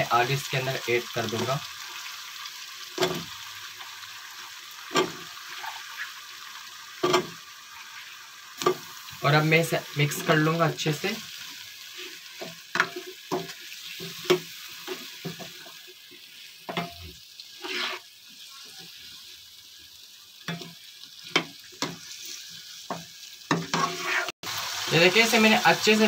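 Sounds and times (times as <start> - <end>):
light frying sizzle: 0.0 - 26.0
spatula scraping a wok: 4.8 - 6.2, 11.8 - 19.2, 20.5 - 24.4.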